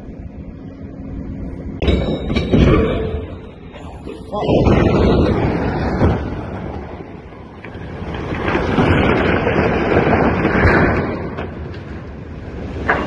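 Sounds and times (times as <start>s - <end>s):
wind buffeting microphone: 3.3s - 13.0s.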